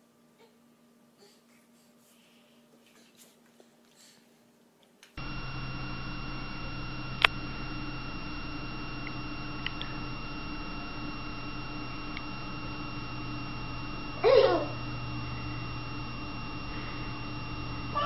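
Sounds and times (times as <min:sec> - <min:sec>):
electrical hum with high whine: 0:05.1 - 0:18.0
sharp click: 0:07.2 - 0:07.4.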